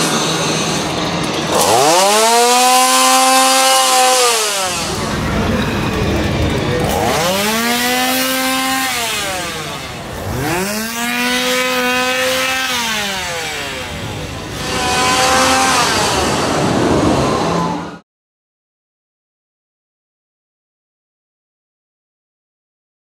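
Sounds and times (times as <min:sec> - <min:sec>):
chainsaw engine revving: 0:00.0 - 0:18.0.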